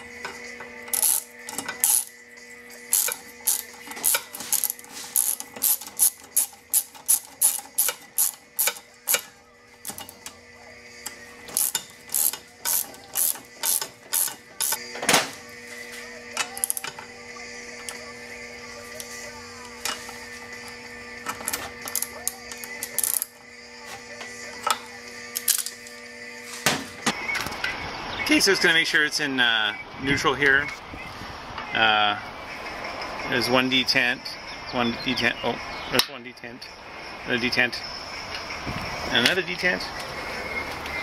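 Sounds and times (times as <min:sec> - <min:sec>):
ratchet wrench clicking: 0:00.2 - 0:10.4, 0:11.0 - 0:14.8, 0:16.4 - 0:17.0, 0:21.2 - 0:23.4, 0:24.6 - 0:25.8.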